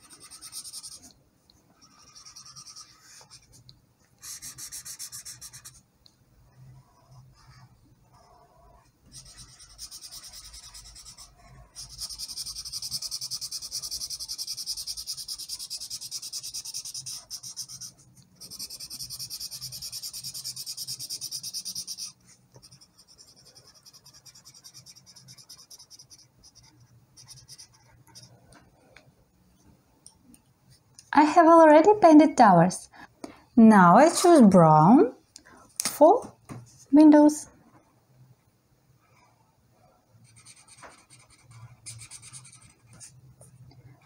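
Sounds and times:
marker scribbling on paper: 0.0s - 1.1s, 1.8s - 5.8s, 9.1s - 28.4s, 34.0s - 34.5s, 40.2s - 43.2s.

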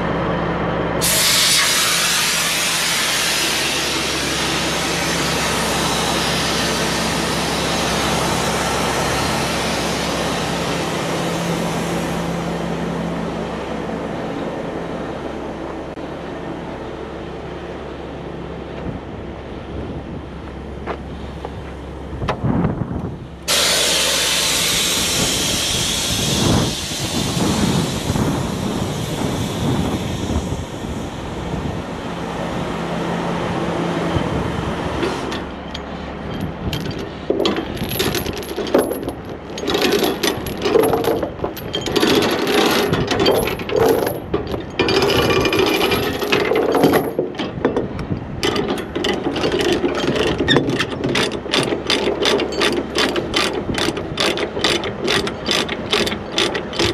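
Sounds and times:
wind and road noise: 0.0s - 56.9s
mechanical clicking and clattering: 36.4s - 56.9s.

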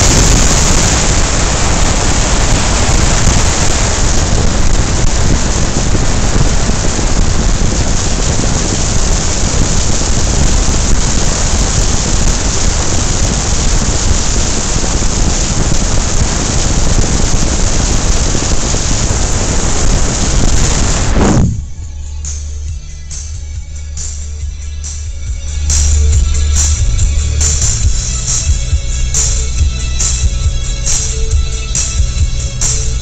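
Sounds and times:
wind rushing over microphone: 0.0s - 21.9s
road noise: 0.0s - 33.0s.

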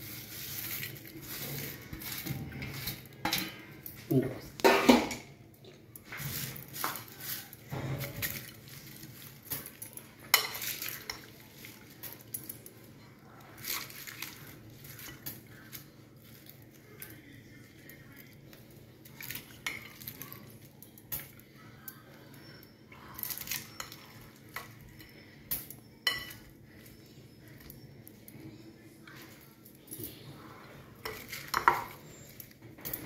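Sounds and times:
spoon stirring food in bowl: 5.6s - 33.0s
spoon clinking on glass: 23.3s - 27.8s.

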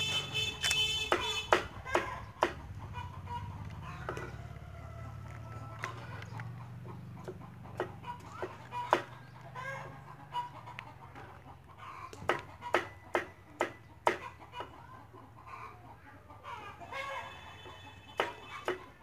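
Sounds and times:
cleaver chopping on wooden board: 0.6s - 2.7s, 7.3s - 9.1s, 12.1s - 14.2s.

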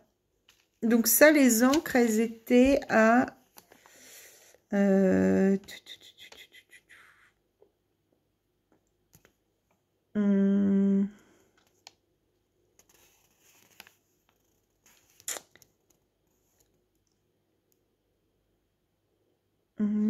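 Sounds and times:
woman humming: 4.8s - 6.5s, 10.2s - 11.3s, 19.8s - 20.0s.

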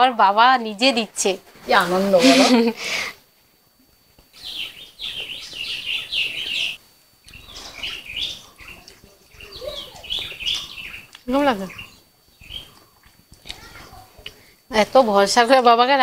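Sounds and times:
small birds chirping: 4.2s - 15.7s.

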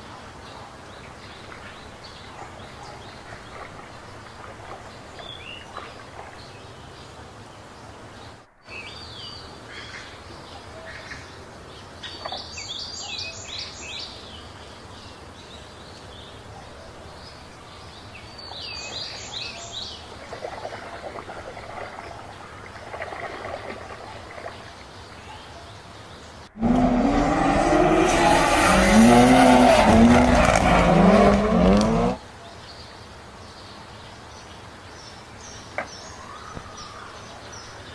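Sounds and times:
birds chirping: 0.4s - 26.6s, 28.0s - 37.9s
water sloshing in a tub: 2.5s - 6.8s, 20.0s - 25.1s
engine revving: 26.6s - 32.2s.

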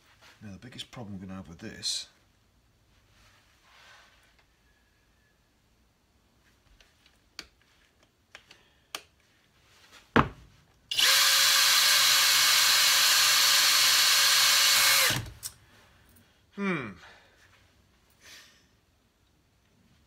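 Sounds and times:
cordless drill spinning: 10.9s - 15.6s.

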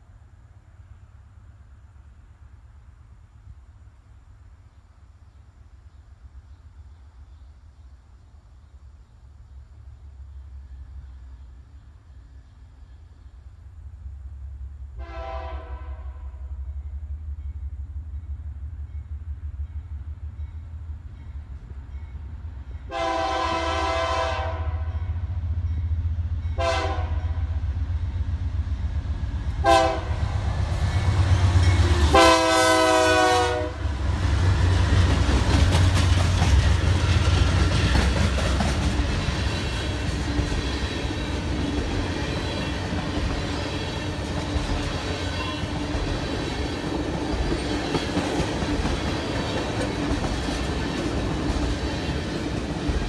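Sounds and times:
diesel locomotives rumbling: 0.0s - 53.0s
train air horn blasts: 15.0s - 16.6s, 22.9s - 25.2s, 26.6s - 27.6s, 29.6s - 30.4s, 31.9s - 34.0s
train wheels clicking over rail joints: 34.1s - 53.0s.

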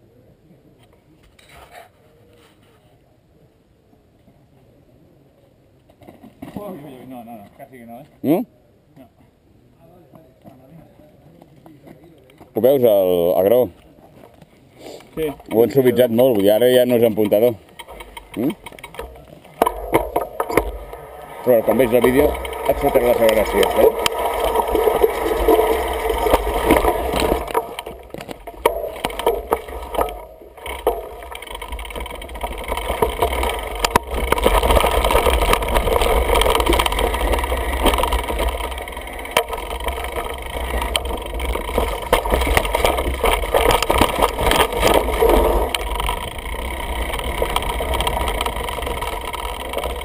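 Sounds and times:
bike tyres on dirt: 12.5s - 50.0s
bike parts clattering: 15.2s - 50.0s.

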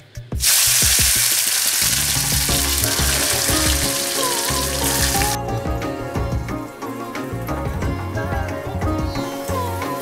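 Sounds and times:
tomatoes sizzling in hot oil: 0.4s - 5.4s.

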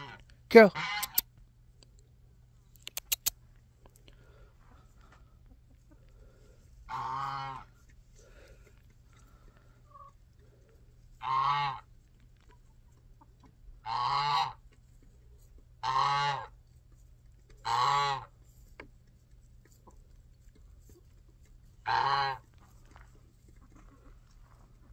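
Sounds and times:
goose honking: 6.9s - 7.7s, 11.2s - 11.8s, 13.8s - 14.6s, 15.8s - 16.5s, 17.6s - 18.3s, 21.8s - 22.5s.

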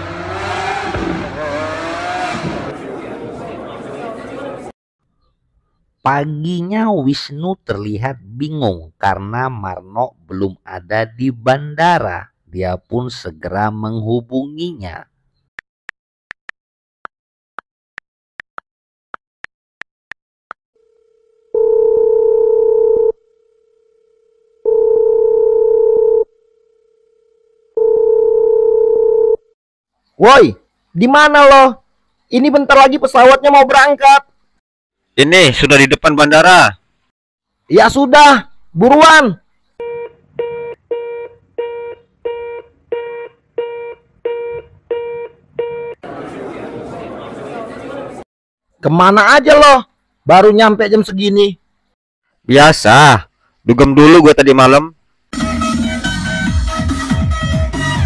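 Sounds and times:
telephone busy tone: 20.8s - 29.5s.

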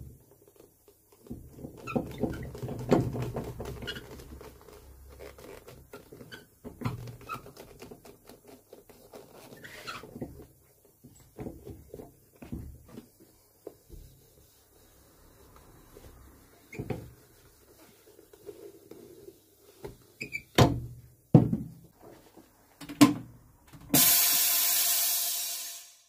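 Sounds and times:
air hissing from press: 24.0s - 26.0s
sharp hammer blows: 24.0s - 26.0s.

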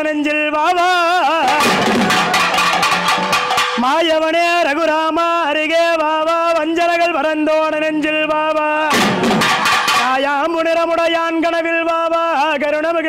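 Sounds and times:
drums beating quickly: 1.2s - 4.7s, 8.9s - 11.0s.

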